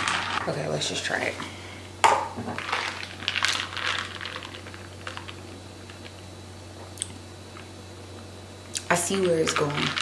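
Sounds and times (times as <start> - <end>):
ice cubes clinking in a jar: 2.6 - 5.4, 9.1 - 10.0.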